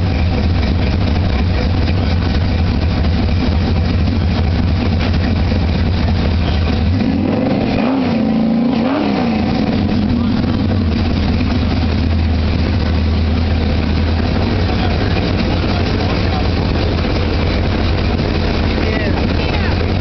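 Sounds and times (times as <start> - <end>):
car engine running: 0.0 - 20.0.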